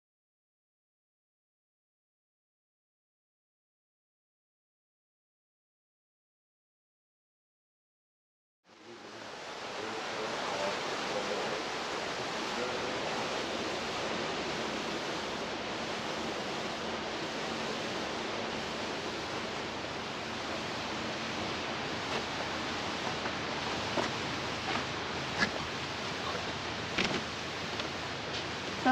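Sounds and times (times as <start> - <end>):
steady rushing hiss: 8.7 - 28.9.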